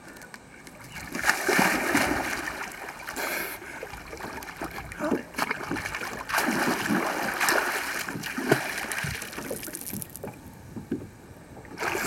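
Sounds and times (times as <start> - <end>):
water lapping and trickling: 0.0 - 12.0
swimmer splashing in river: 1.0 - 9.9.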